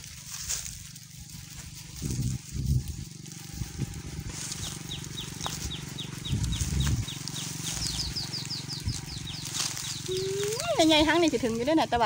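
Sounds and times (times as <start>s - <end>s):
bird calling high falling notes: 10.0s - 10.9s.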